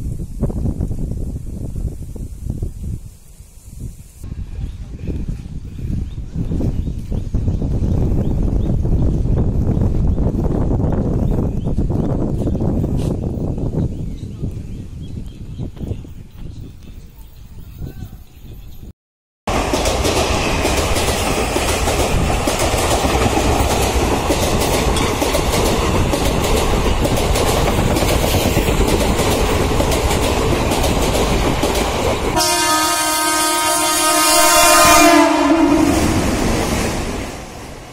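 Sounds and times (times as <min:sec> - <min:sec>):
passenger train rumbling: 0:03.8 - 0:18.9, 0:19.5 - 0:37.9
train horn: 0:32.4 - 0:36.5.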